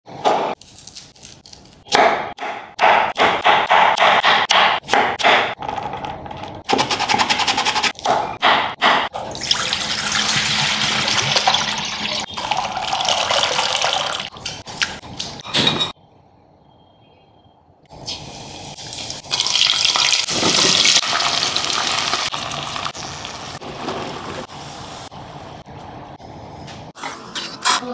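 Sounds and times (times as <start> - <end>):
knife chopping on wooden board: 1.9 - 5.6, 6.7 - 9.1.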